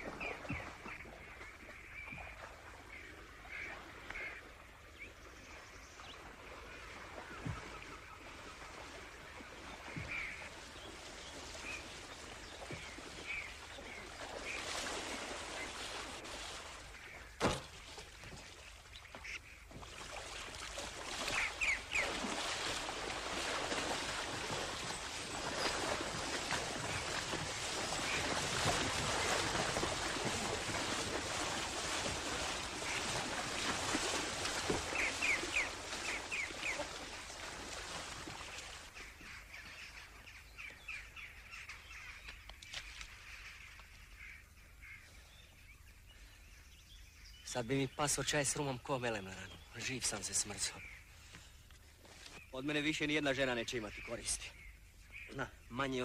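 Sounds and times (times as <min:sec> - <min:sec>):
water splashing from wading: 0:00.0 - 0:41.3
short bird calls: 0:34.8 - 0:37.1.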